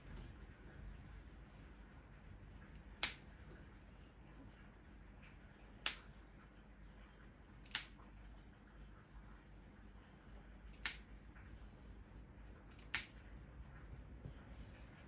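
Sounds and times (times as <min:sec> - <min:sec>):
nail clipper snipping claws: 0:03.0 - 0:03.2, 0:05.8 - 0:06.1, 0:07.6 - 0:08.0, 0:10.7 - 0:11.0, 0:12.7 - 0:13.2.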